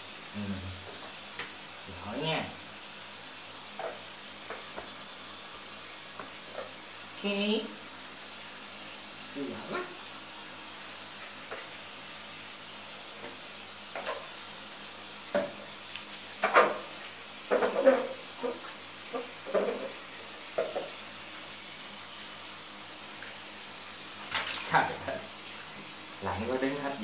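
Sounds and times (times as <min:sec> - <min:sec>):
water splashing in a basin: 0:24.2 - 0:25.8.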